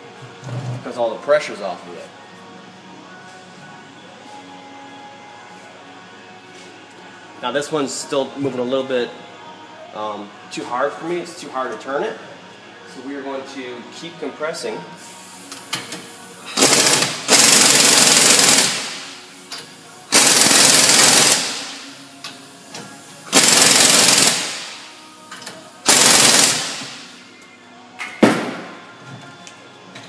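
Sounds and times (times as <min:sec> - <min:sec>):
air impact wrench hammering: 0:16.6 - 0:19.2, 0:20.1 - 0:21.9, 0:23.3 - 0:24.9, 0:25.9 - 0:27.1.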